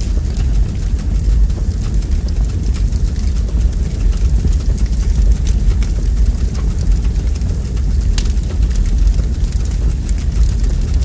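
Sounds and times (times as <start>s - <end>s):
fire crackles and pops: 0.0s - 11.0s
fire flames rumbling: 0.0s - 11.0s.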